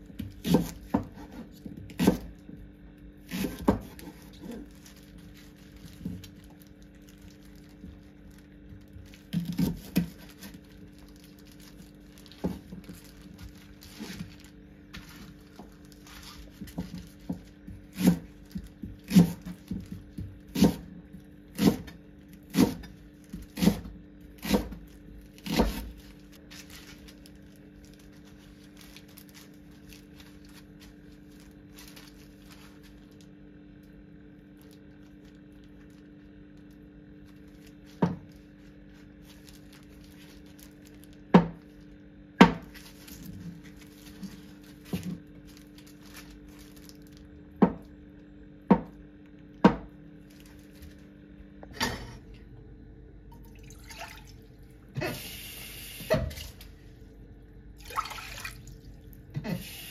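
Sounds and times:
steady low hum: 0:00.0 - 0:59.9
knife chopping on cutting board: 0:00.2 - 0:02.3, 0:03.3 - 0:04.4, 0:16.6 - 0:24.8, 0:25.4 - 0:25.9, 0:42.4 - 0:42.7.

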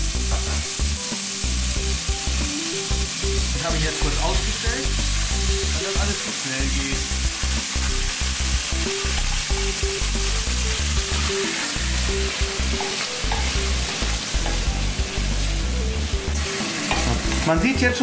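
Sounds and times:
sour cream sizzling in a pan: 0:00.0 - 0:18.0
metal fork stirring in a pan: 0:12.4 - 0:14.8, 0:16.4 - 0:17.5.

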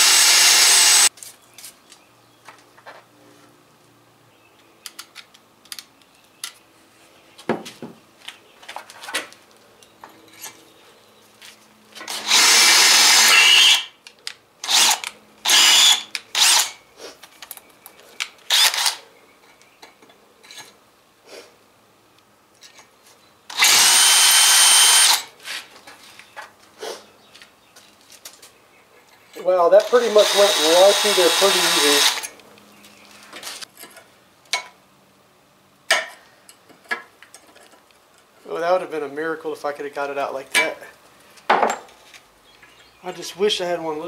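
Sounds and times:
cordless drill boring metal: 0:00.0 - 0:01.1, 0:12.1 - 0:13.9, 0:14.6 - 0:16.8, 0:18.5 - 0:19.0, 0:23.5 - 0:25.3, 0:29.7 - 0:32.3.

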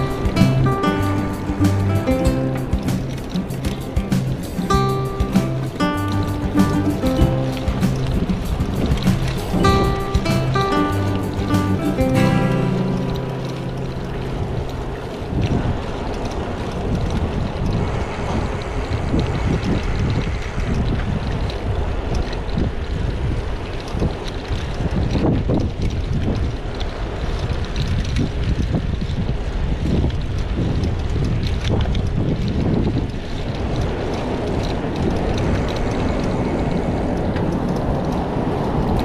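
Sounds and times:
low road rumble: 0:00.0 - 0:39.0
wind buffeting microphone: 0:00.0 - 0:39.0.

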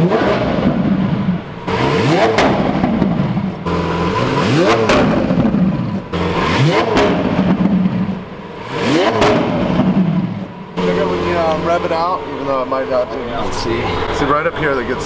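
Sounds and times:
car engine idling: 0:00.0 - 0:15.0
car engine revving: 0:00.0 - 0:15.0.

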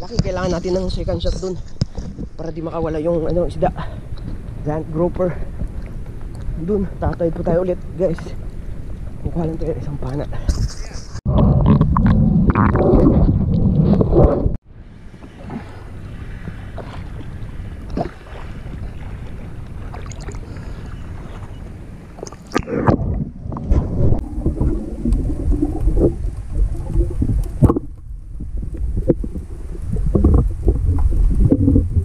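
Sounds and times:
muffled underwater sloshing: 0:11.3 - 0:32.0
underwater knocks: 0:22.5 - 0:29.4.

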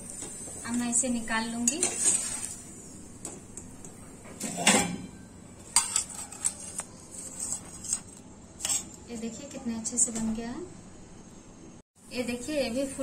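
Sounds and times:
metal spatula scraping a pan: 0:01.6 - 0:02.7, 0:04.4 - 0:09.0.

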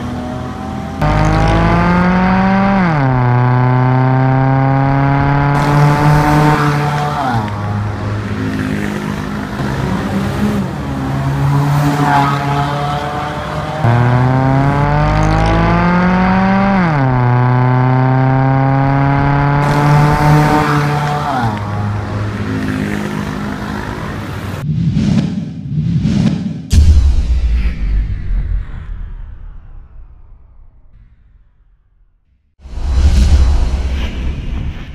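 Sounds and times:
car exhaust revving: 0:00.0 - 0:24.6.

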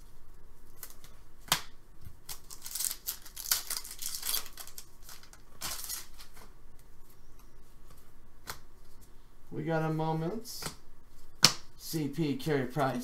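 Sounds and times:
plastic bag crinkling: 0:02.2 - 0:06.3.

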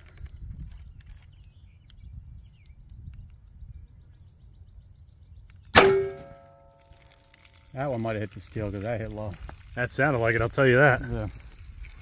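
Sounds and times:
revolver shot: 0:05.8 - 0:06.6
metallic ringing: 0:05.8 - 0:07.0.

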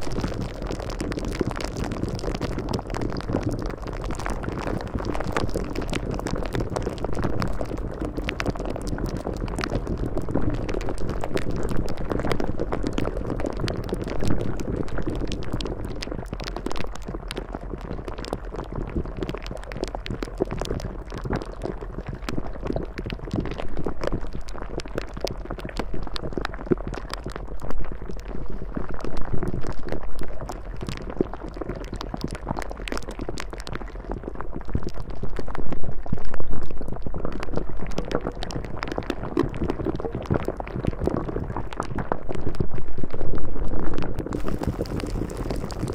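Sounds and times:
bubbling churning water: 0:00.0 - 0:27.4, 0:44.2 - 0:45.9.

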